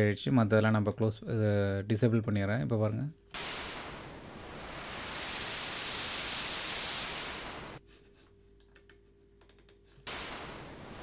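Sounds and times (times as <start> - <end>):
white noise riser hiss: 3.4 - 7.8, 10.1 - 11.0
faint clicks: 8.6 - 9.8.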